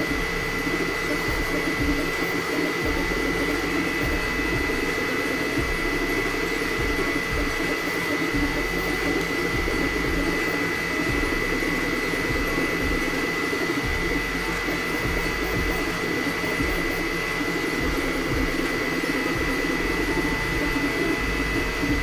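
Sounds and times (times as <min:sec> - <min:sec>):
cooling fans whining: 0:00.0 - 0:22.0
stepper motors humming: 0:00.0 - 0:22.0.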